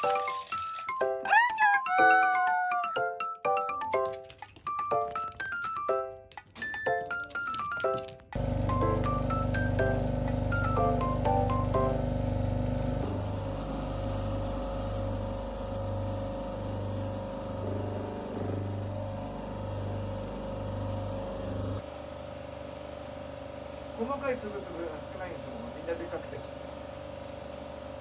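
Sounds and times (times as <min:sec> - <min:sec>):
water pump humming and throbbing: 0:08.4 - 0:21.8.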